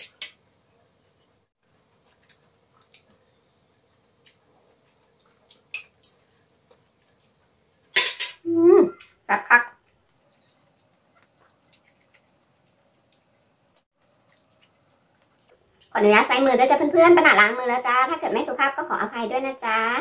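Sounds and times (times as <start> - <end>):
cutlery clinking on metal tray: 8.0 - 8.4.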